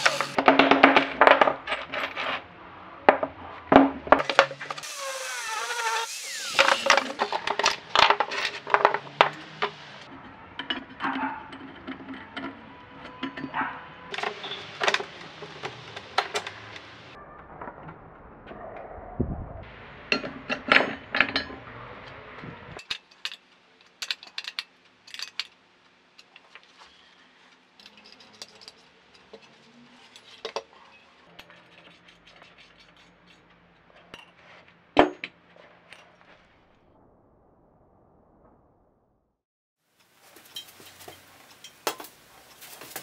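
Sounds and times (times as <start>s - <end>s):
metal tools clinking: 27.8s - 31.1s, 40.4s - 41.8s.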